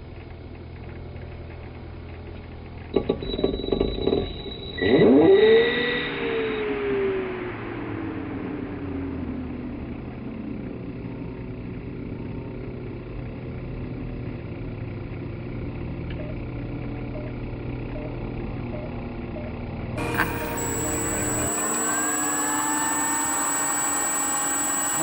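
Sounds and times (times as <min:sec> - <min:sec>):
model plane engine idling: 0:20.0 - 0:25.0.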